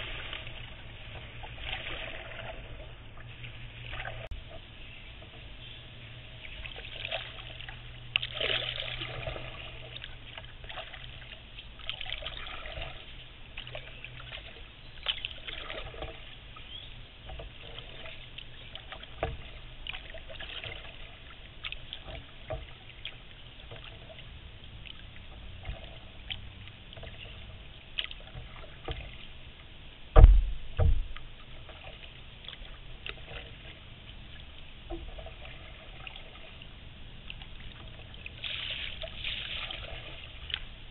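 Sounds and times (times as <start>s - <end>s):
paddle splashing in water: 0.0s - 40.9s
loud dull thumps: 30.1s - 31.2s.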